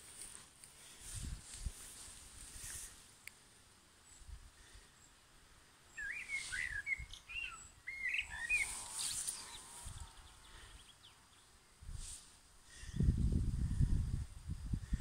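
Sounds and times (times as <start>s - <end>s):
faint rustling: 0.0s - 3.2s
songbird warbling: 5.9s - 11.4s.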